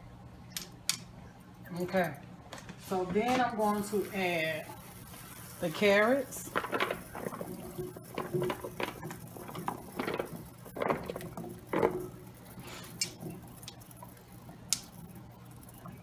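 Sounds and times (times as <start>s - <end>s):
carrots tumbling into a pan: 5.7s - 12.2s
sharp clicks: 14.7s - 15.0s.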